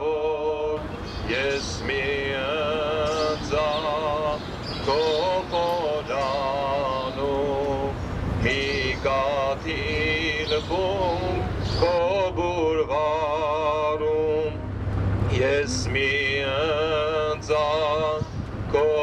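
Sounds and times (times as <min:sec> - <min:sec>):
low steady hum: 0:00.0 - 0:19.0
person singing a slow chant: 0:00.0 - 0:19.0.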